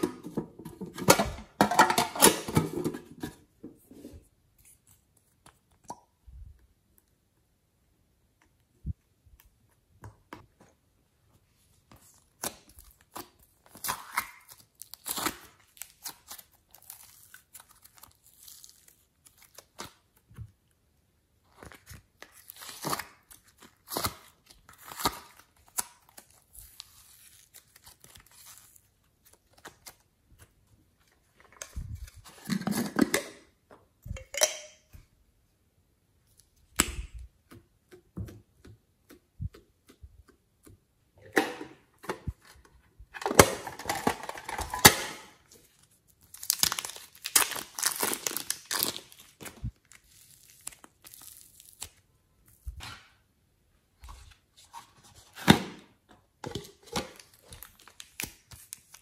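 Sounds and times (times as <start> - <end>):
slime squelching and crackling: 46.0 - 52.6.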